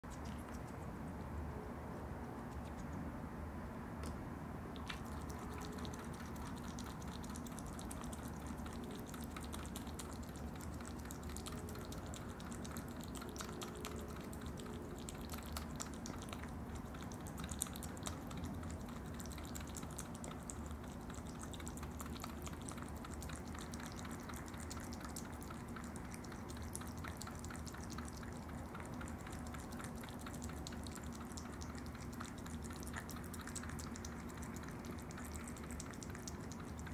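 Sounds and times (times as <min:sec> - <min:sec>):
animals lapping and chewing: 0:00.0 - 0:01.5, 0:02.2 - 0:03.1, 0:04.7 - 0:36.9.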